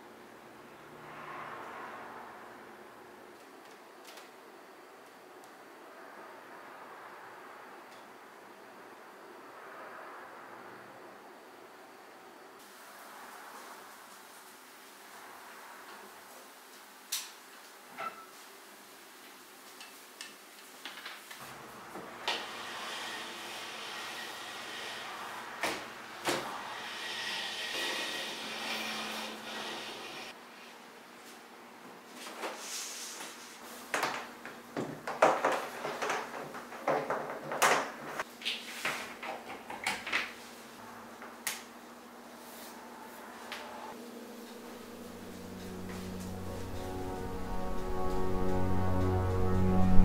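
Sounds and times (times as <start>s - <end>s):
faint hum: 41.8s - 50.0s.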